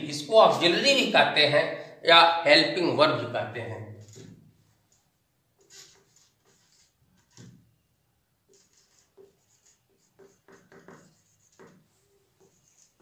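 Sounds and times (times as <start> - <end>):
marker writing on whiteboard: 5.5 - 7.7, 8.4 - 13.0.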